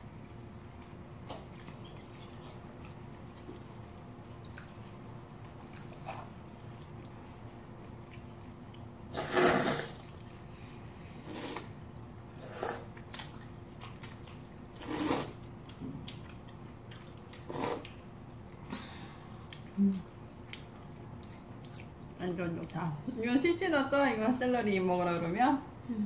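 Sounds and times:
noodles slurped: 9.0s - 10.4s, 11.2s - 16.3s, 17.0s - 18.1s
person humming: 19.8s - 20.1s.

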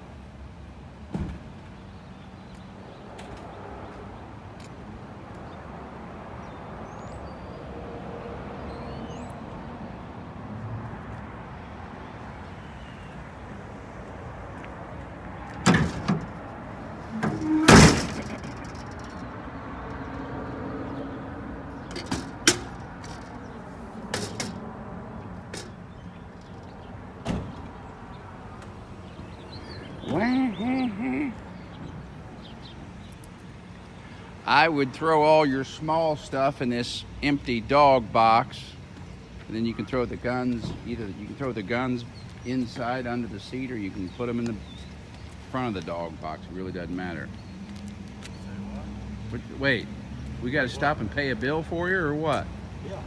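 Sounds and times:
doors shutting with bangs: 15.6s - 16.4s, 17.1s - 18.8s, 27.2s - 27.8s.

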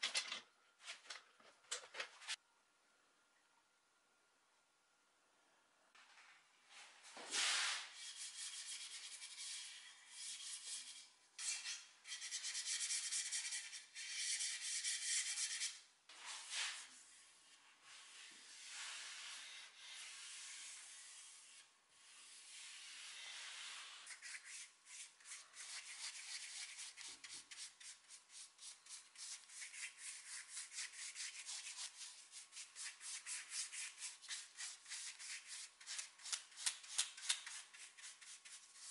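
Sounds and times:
paintbrush scratching on wood: 18.0s - 38.9s.

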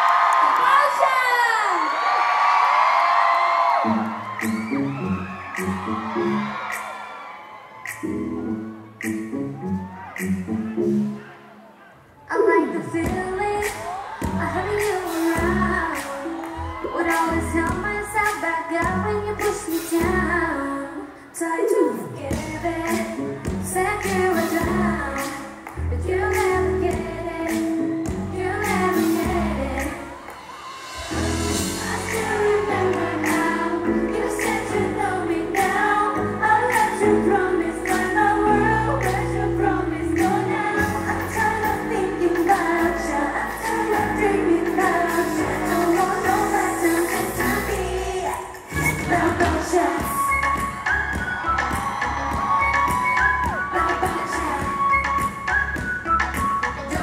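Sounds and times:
female group vocals: 12.3s - 30.4s, 31.1s - 51.3s, 52.6s - 55.0s
backing track with dance beat: 22.3s - 57.0s.

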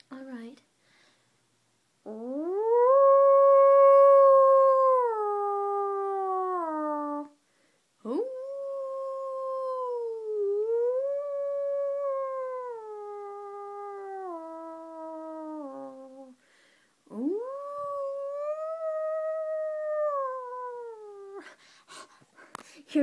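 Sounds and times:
person howling like a wolf: 2.1s - 7.3s, 8.0s - 16.3s, 17.1s - 21.4s.

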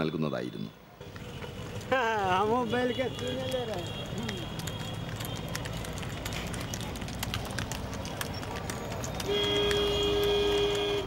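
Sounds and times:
road noise: 0.0s - 11.0s
vehicle horn blowing: 9.3s - 11.0s.

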